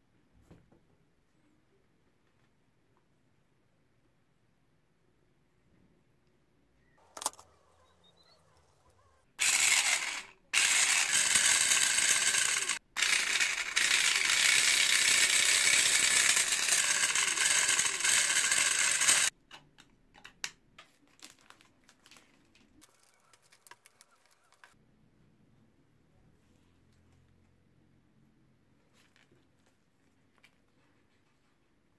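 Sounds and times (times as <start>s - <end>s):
electric motor with meshing gears: 9.4s - 19.3s.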